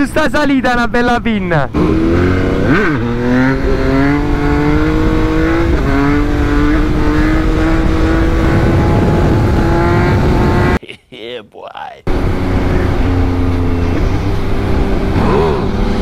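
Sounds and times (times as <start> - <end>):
motorcycle engine accelerating: 1.6 - 10.8, 12.1 - 16.0.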